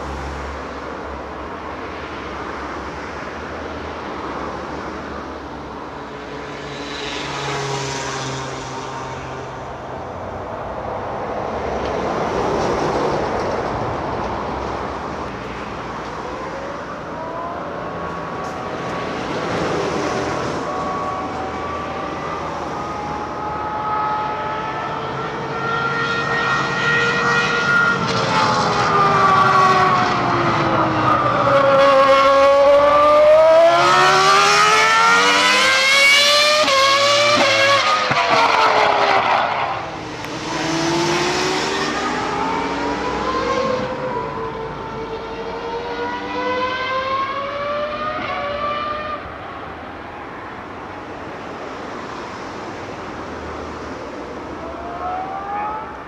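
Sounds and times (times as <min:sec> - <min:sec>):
racing car engine revving: 0:31.5 - 0:49.2.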